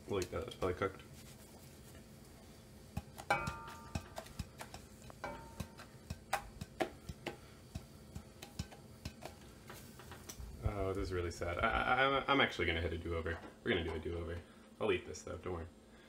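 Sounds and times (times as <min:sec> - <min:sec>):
frying pan knocking on metal grate: 0:02.9 - 0:09.4.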